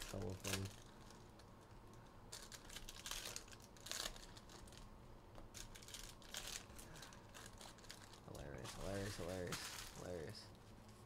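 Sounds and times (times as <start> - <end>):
trading cards rustling and clicking: 5.5 - 10.3.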